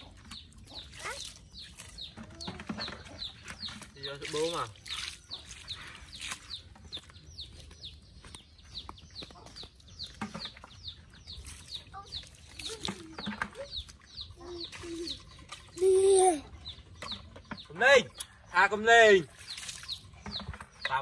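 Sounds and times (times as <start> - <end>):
birds peeping: 0.0 - 21.0.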